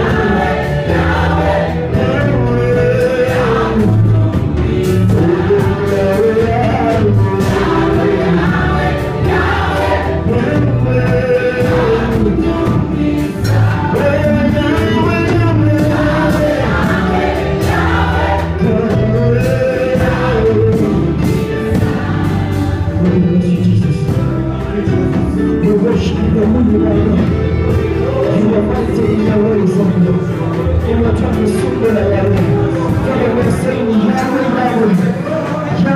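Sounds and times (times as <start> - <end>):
male lead singer: 0.0 - 21.8, 22.8 - 35.9
choir singing: 0.0 - 23.2
band with drums and bass: 0.0 - 35.9.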